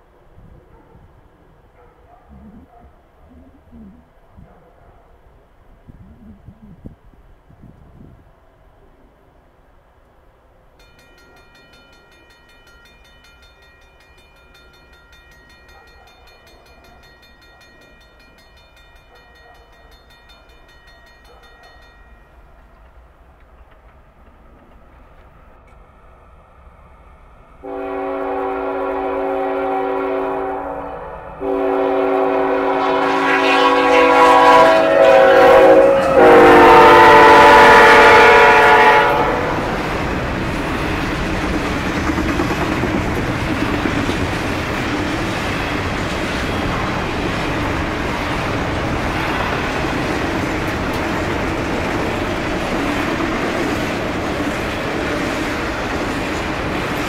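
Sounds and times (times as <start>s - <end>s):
freight train rumbling and clattering: 10.8s - 57.0s
locomotive air horn blasts: 27.6s - 39.8s.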